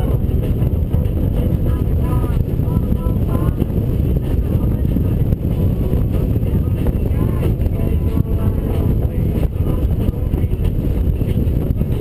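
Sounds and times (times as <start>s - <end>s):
motorcycle engine running: 0.0s - 12.0s
wind rushing on microphone: 0.0s - 12.0s.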